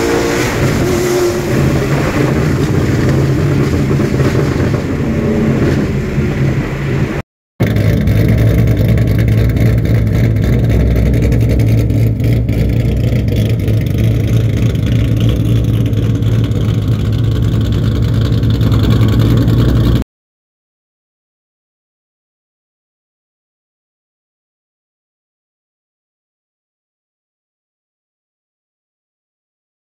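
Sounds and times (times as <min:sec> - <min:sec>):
car engine running loudly: 0:00.0 - 0:20.0.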